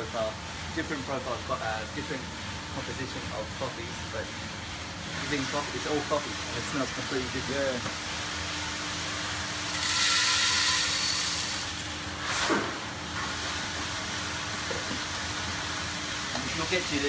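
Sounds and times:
coffee beans pouring rattle: 0:09.7 - 0:11.9.

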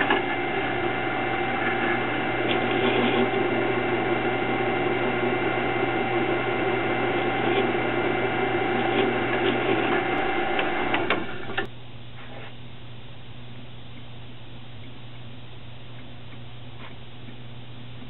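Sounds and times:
drill press drilling metal: 0:00.0 - 0:11.7.

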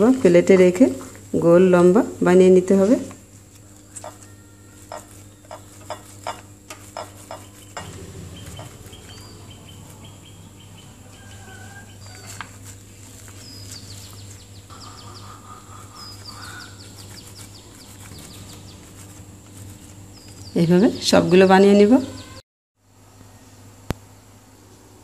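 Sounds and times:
steady low hum: 0:00.0 - 0:25.0
small birds chirping: 0:07.0 - 0:22.4.

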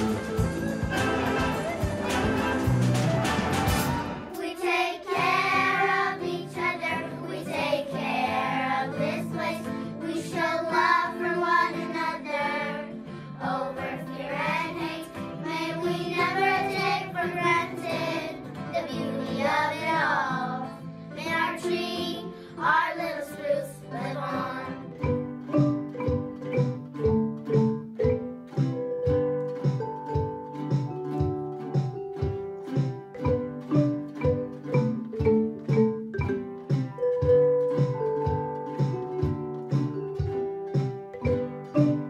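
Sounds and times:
instrumental backing: 0:00.0 - 0:22.9, 0:24.0 - 0:42.0
children singing together: 0:03.9 - 0:24.9.

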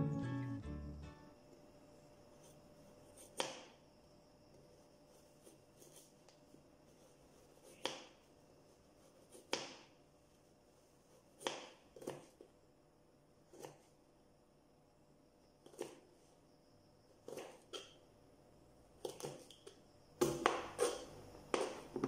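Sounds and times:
faint steady hum: 0:00.0 - 0:22.0
knife chopping carrot on board: 0:03.1 - 0:03.8, 0:07.6 - 0:08.2, 0:09.2 - 0:09.9, 0:11.4 - 0:12.4, 0:13.5 - 0:13.9, 0:19.0 - 0:19.6, 0:20.2 - 0:22.0.

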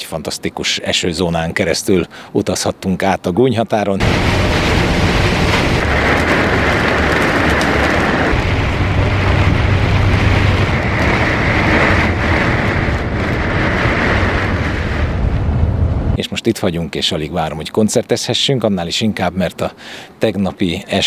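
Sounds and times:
heavy rain on windscreen: 0:04.0 - 0:16.1
bus road and engine noise: 0:04.0 - 0:16.2.

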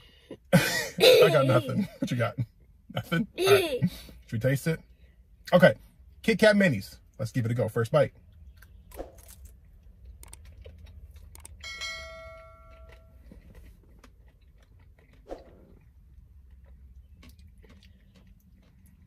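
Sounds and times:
low steady hum: 0:00.0 - 0:19.0
crunching and chewing: 0:08.2 - 0:19.0
bell-like chime: 0:11.6 - 0:13.1.

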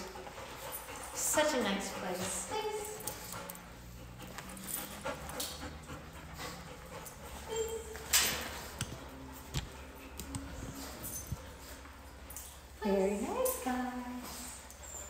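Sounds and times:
dog panting: 0:00.0 - 0:08.0, 0:08.6 - 0:15.0
dog whining: 0:07.4 - 0:08.4.

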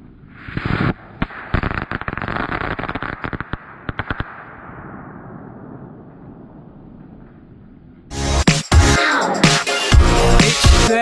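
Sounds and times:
firework crackling: 0:00.0 - 0:07.8.

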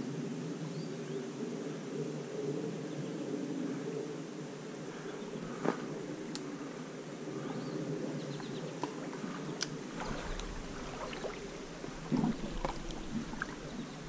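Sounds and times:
water sloshing around wading legs: 0:08.8 - 0:14.0.

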